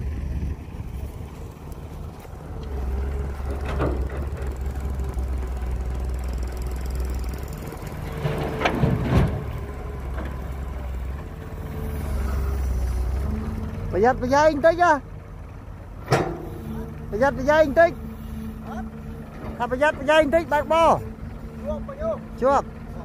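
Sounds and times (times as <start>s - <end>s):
excavator diesel engine: 0.0s - 23.0s
metal clanks: 3.4s - 5.3s, 6.2s - 10.6s, 16.0s - 16.7s.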